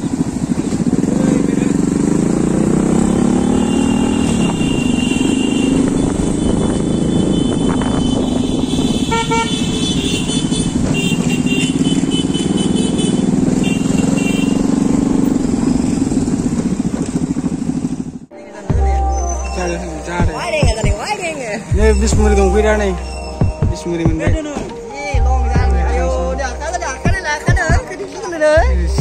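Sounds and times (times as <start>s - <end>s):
motorcycle engine running: 0.0s - 24.6s, 25.2s - 29.0s
road noise: 0.0s - 29.0s
vehicle horn toot: 3.1s - 14.7s.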